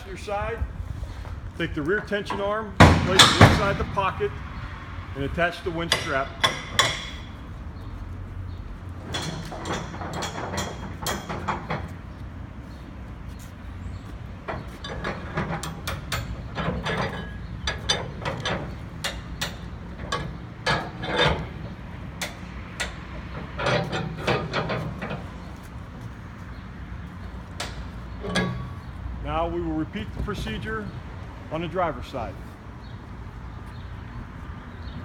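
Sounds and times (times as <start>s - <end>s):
strap winch clicking and knocking: 5.8s - 7.4s, 9.0s - 12.0s, 14.5s - 25.6s, 27.1s - 29.0s.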